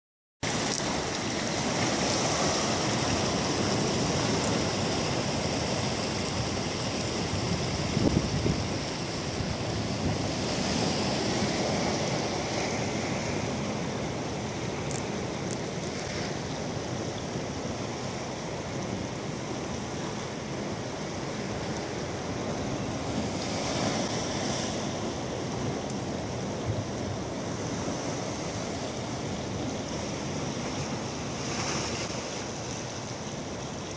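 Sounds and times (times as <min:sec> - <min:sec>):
surf washing onto rocks: 0:00.4 - 0:33.9
wind buffeting microphone: 0:06.6 - 0:13.0.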